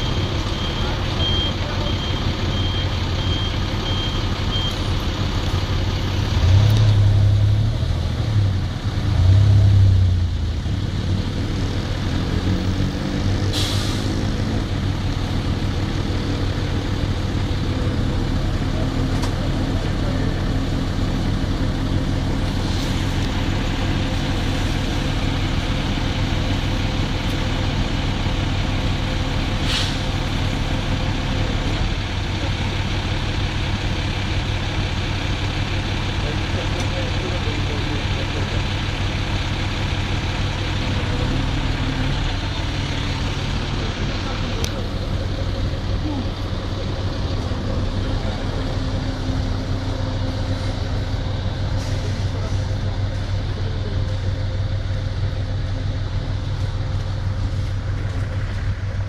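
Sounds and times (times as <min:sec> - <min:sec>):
short warning beeps: 0:00.0 - 0:04.9
diesel engine running: 0:00.0 - 0:59.0
short sharp clicks or hisses: 0:29.6 - 0:30.1.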